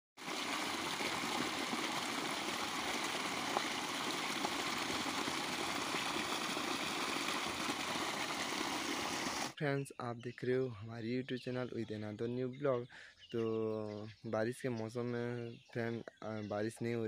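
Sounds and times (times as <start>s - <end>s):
water splashing into puddle: 0.2s - 9.6s.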